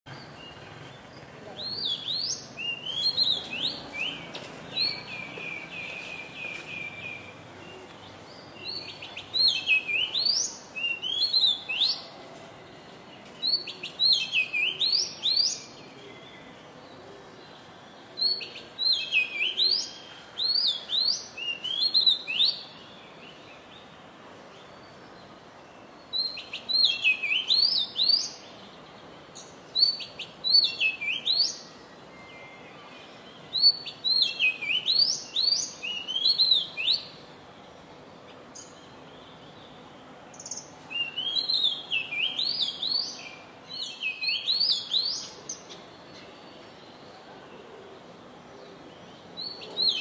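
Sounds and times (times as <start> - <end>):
bird singing whistled phrases: 40.9 - 45.4.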